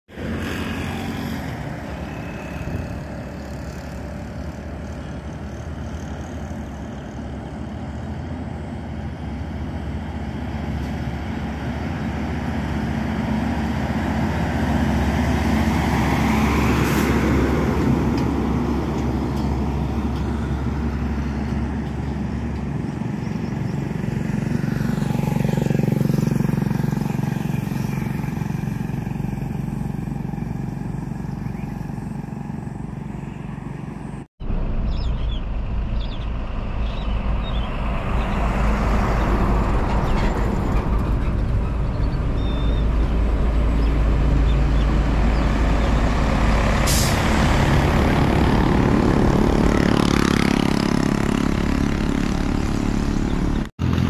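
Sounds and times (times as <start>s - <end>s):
diesel trucks driving past: 0.1s - 54.0s.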